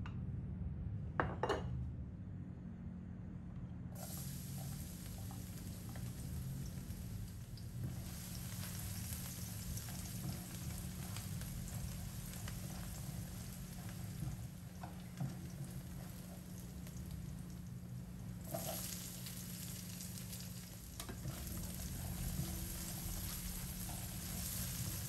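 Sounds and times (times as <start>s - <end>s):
garlic sizzling in oil: 4.0s - 25.0s
spatula scraping and tapping: 21.0s - 25.0s.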